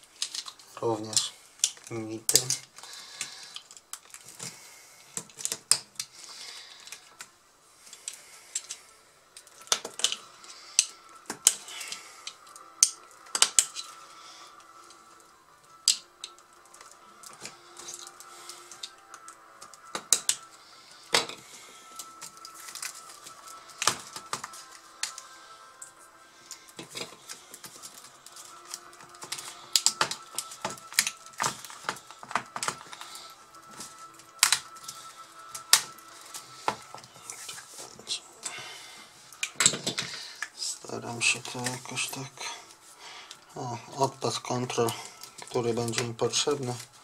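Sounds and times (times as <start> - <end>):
small tool clicking and snapping plastic: 5.2 - 6.1, 9.4 - 10.2, 10.8 - 13.9, 15.8 - 20.5, 26.8 - 33.0, 33.7 - 35.0.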